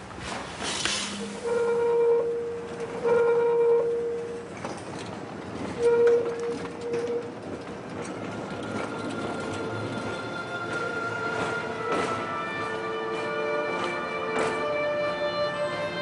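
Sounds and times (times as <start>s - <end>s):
tram passing: 0.0s - 16.0s
horn-like tone: 1.1s - 4.4s, 5.8s - 7.3s
traffic noise: 4.1s - 16.0s.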